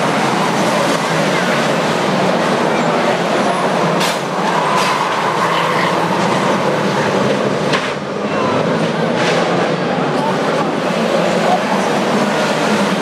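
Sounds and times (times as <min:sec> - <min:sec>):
cars banging together: 0:00.0 - 0:13.0
racing car engines droning: 0:00.0 - 0:13.0.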